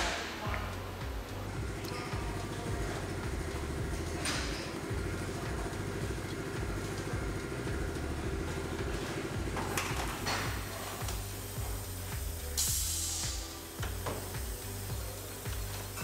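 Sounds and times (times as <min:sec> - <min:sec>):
background music with beat: 0:00.0 - 0:16.0
brief hiss: 0:12.4 - 0:15.6.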